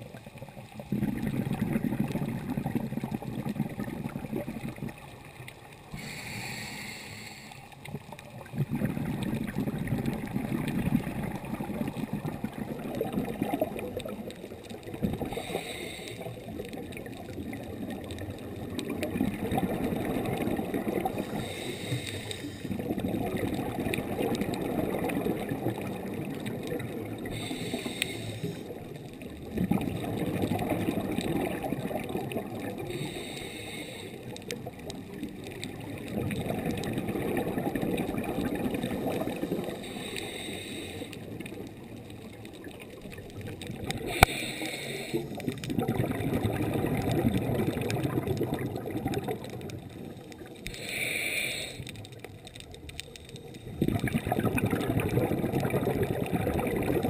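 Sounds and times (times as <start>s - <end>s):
exhaled bubbles burbling: 0.0s - 6.1s, 7.7s - 33.4s, 34.2s - 40.4s, 41.0s - 50.8s, 51.8s - 57.0s
regulator inhalation hiss: 5.9s - 7.7s, 15.3s - 16.4s, 21.2s - 22.7s, 27.2s - 28.7s, 32.9s - 34.3s, 39.4s - 41.2s, 44.1s - 45.4s, 50.7s - 52.0s.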